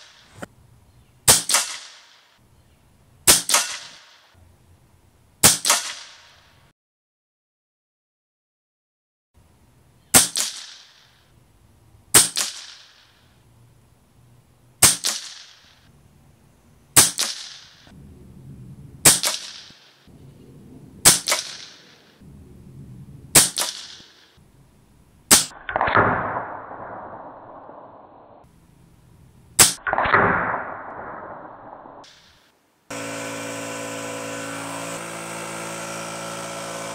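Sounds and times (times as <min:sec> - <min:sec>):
air rifle shots: 0:01.3 - 0:02.4, 0:03.2 - 0:04.4, 0:05.4 - 0:06.6, 0:10.1 - 0:11.2, 0:12.1 - 0:13.3, 0:14.8 - 0:15.9, 0:17.0 - 0:18.0, 0:19.0 - 0:20.1, 0:21.0 - 0:22.2, 0:23.3 - 0:24.4, 0:25.3 - 0:28.5, 0:29.6 - 0:32.5
dull noise: 0:17.9 - 0:19.1, 0:22.0 - 0:23.4.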